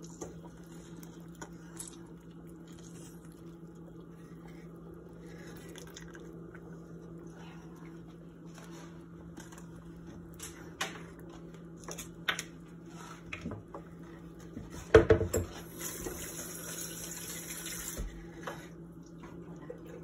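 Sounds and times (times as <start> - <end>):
wooden spoon stirring sauce: 0.0 - 1.7
low steady hum: 0.0 - 20.0.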